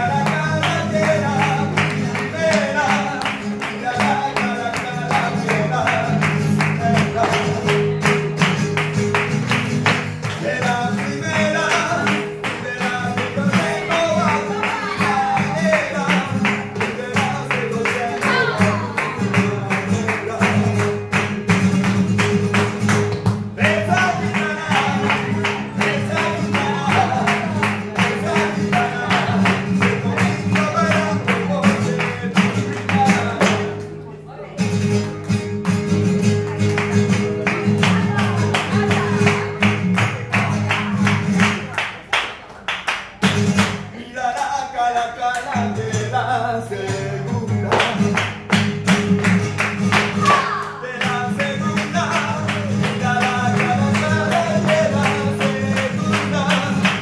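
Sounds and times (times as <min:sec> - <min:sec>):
guitar: 0:00.0 - 0:57.0
person singing: 0:10.3 - 0:20.8, 0:23.6 - 0:33.8, 0:37.7 - 0:41.1, 0:50.1 - 0:57.0.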